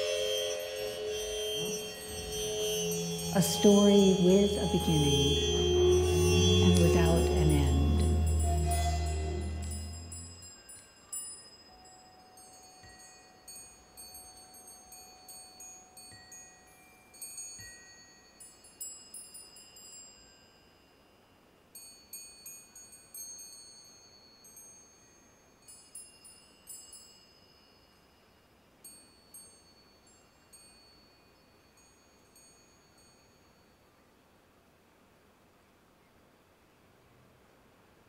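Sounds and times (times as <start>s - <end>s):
high-pitched chimes ringing: 0.0s - 21.0s.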